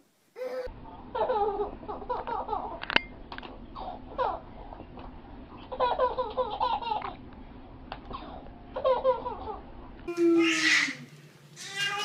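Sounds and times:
baby giggling: 3.8 - 4.8, 5.6 - 7.2, 8.1 - 11.0.

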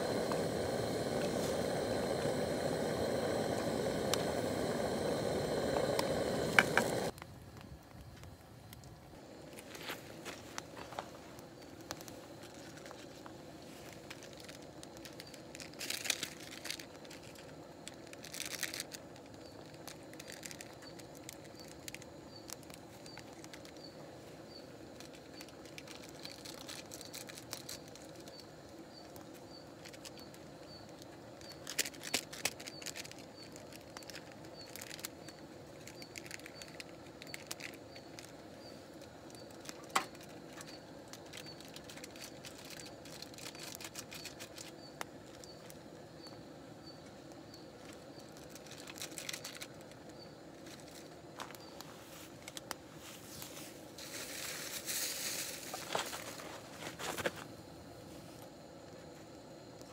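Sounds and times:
plastic packet crinkling: 11.7 - 23.9, 24.9 - 28.5, 29.8 - 45.8, 47.2 - 51.6.

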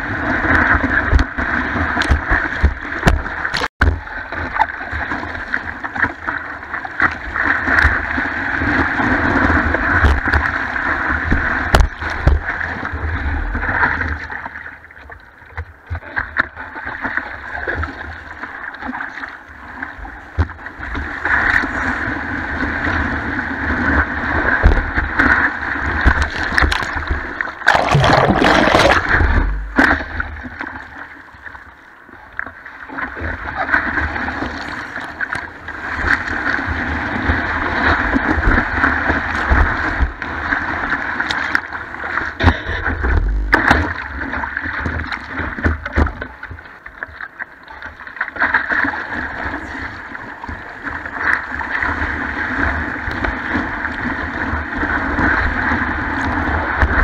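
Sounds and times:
whitewater rushing over surfboard: 0.0 - 57.0
breaking wave rushing: 27.7 - 30.0.

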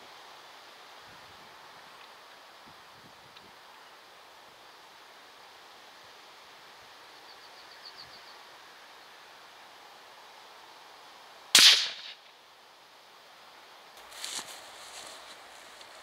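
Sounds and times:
rifle shot: 11.6 - 12.2.

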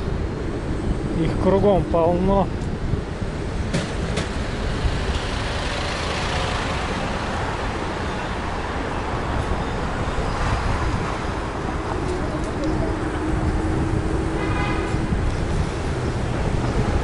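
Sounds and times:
city traffic: 0.0 - 17.0
wind noise: 0.0 - 17.0.

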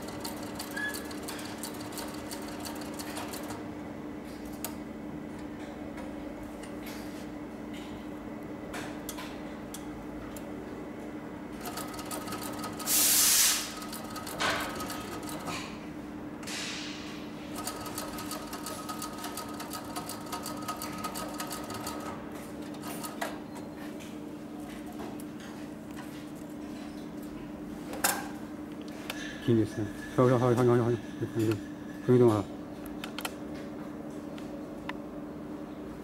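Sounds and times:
sewing machine stitching clatter: 0.0 - 3.6, 11.6 - 15.6, 17.6 - 23.4
loud hiss: 12.9 - 13.7.

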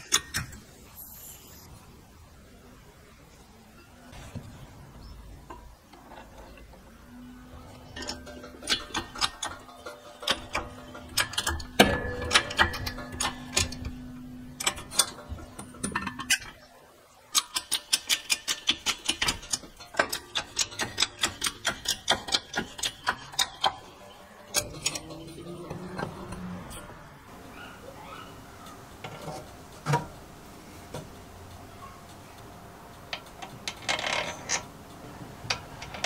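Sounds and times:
faint steady hum: 0.0 - 36.0
hydraulic press clicking: 7.5 - 16.6, 17.3 - 27.0.

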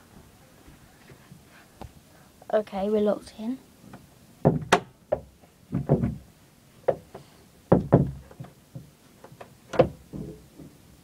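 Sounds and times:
heavy knocking on a door: 4.4 - 6.3, 7.7 - 8.5.

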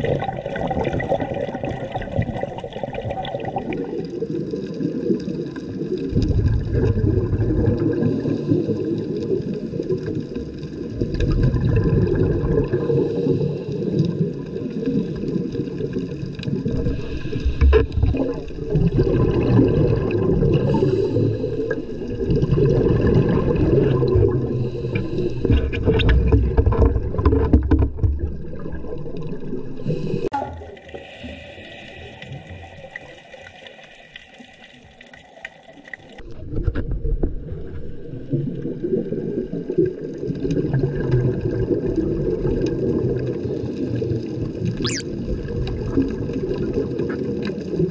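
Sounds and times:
underwater bubbling gurgle: 0.0 - 47.9
underwater hiss: 12.6 - 14.4, 16.6 - 18.7, 20.3 - 22.4, 23.9 - 25.8, 29.8 - 35.1.

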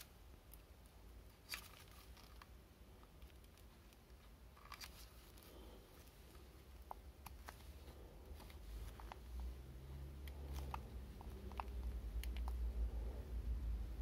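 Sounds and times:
low steady hum: 0.0 - 14.0
soft probe clicks: 10.1 - 12.8.

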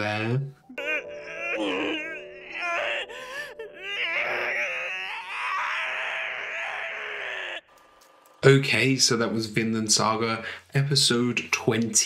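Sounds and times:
person crying and wailing: 0.7 - 7.7.

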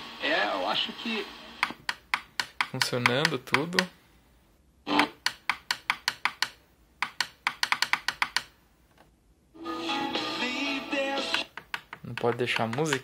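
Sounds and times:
sharp clicks of radio tuner: 1.0 - 3.9.

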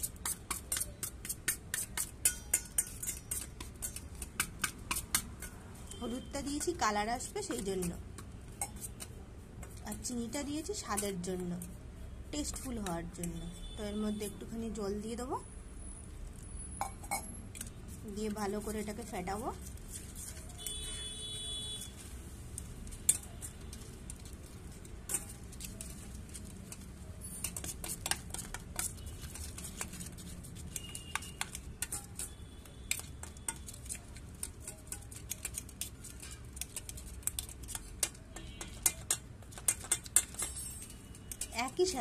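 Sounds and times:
spoon clicking against metal bowl: 0.2 - 5.6, 36.7 - 41.5.

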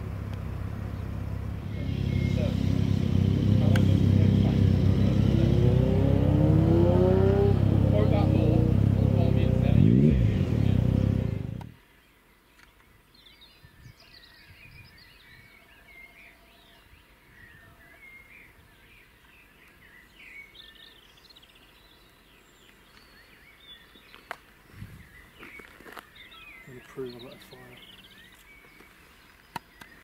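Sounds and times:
vehicle engine cutting off: 0.0 - 11.8
birds chirping and singing: 0.6 - 30.0.

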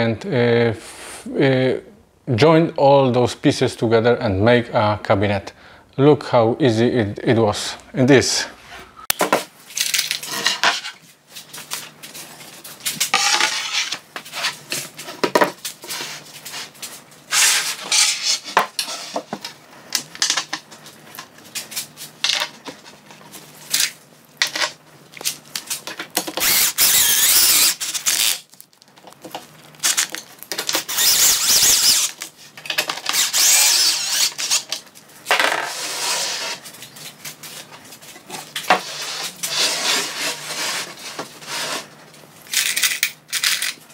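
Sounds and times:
panels scraping and rubbing: 10.1 - 19.6, 35.4 - 42.0.

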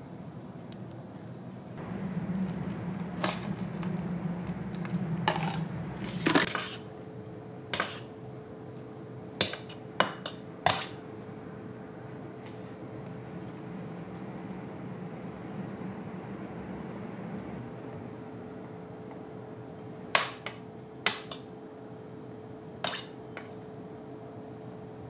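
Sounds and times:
low hum: 1.5 - 7.7, 11.1 - 19.6.

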